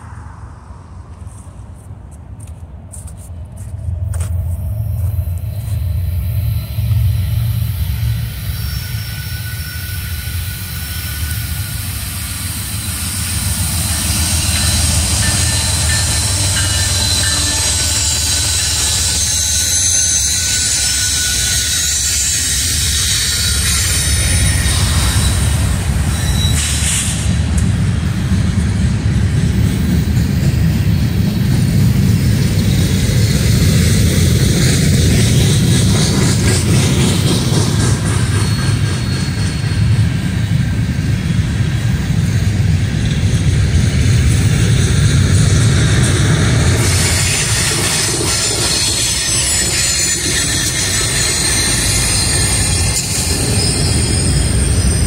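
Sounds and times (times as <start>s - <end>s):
diesel locomotives running: 0.0s - 55.0s
passenger train passing: 0.0s - 55.0s
train wheels rumbling on rails: 0.0s - 55.0s.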